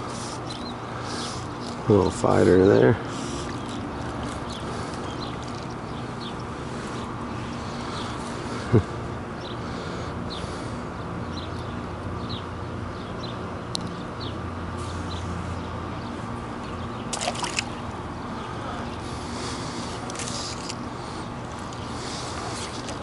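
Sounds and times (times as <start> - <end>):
small water splashes: 3.2 - 6.5, 17.1 - 18.0.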